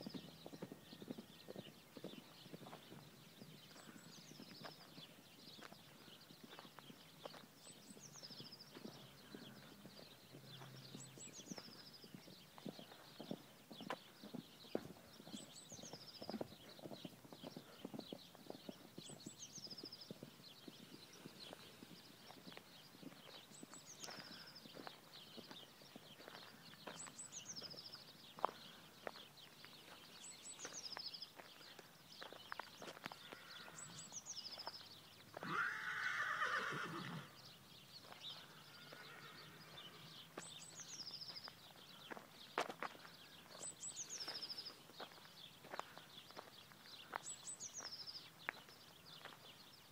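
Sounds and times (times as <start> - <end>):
hoofbeats on grass: 0.0 - 49.9
horse whinnying: 35.4 - 37.4, 38.7 - 40.0.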